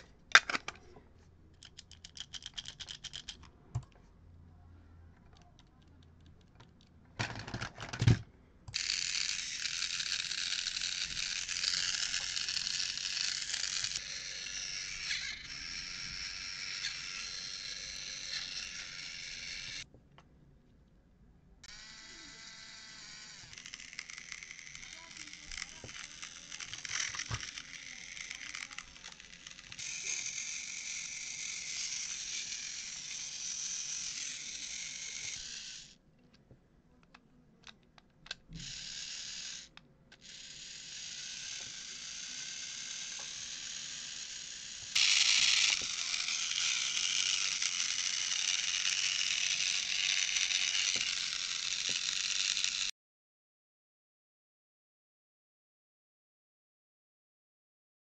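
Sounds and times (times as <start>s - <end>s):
toy train motor whirring: 1.6s - 3.4s, 8.7s - 19.9s, 21.6s - 36.0s, 37.6s - 52.9s.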